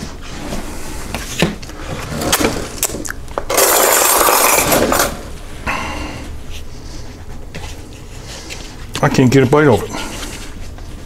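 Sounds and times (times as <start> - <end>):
utensils and dishes clinking: 3.5 - 5.3.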